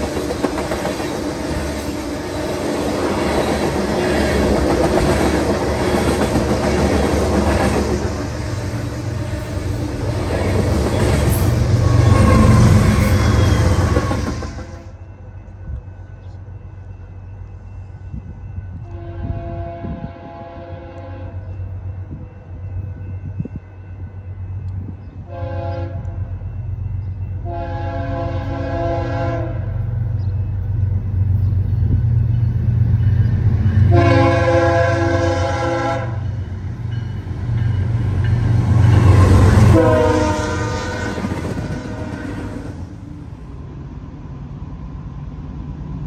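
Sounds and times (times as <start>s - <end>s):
locomotive air horn blasts: 11.6s - 15.0s, 18.8s - 21.5s, 25.2s - 26.3s, 27.4s - 29.8s, 33.9s - 36.3s, 39.0s - 42.6s.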